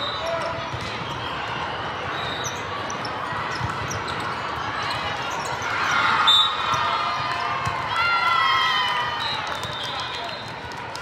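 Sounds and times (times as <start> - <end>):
hubbub of indoor hall: 0.0 - 11.0
people shouting and cheering: 0.0 - 11.0
shoe squeaks: 2.1 - 4.3.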